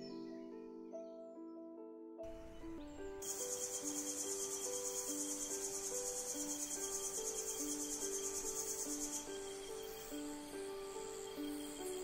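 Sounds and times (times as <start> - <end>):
soft background music: 0.0 - 12.0
insect trilling: 3.2 - 12.0.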